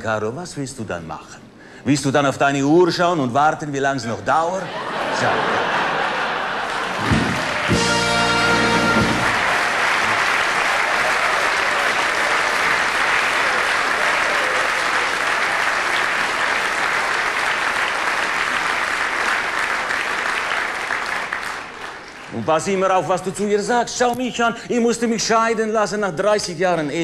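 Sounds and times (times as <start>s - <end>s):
audience applauding: 5.2s - 23.4s.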